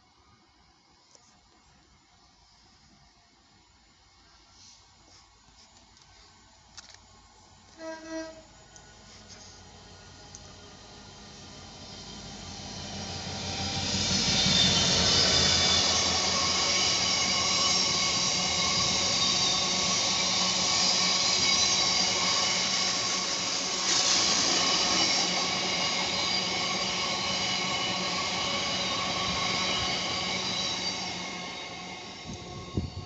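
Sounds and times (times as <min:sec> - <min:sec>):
diesel locomotive passing: 0:06.2 - 0:33.0
train wheels ringing squeal: 0:10.5 - 0:33.0.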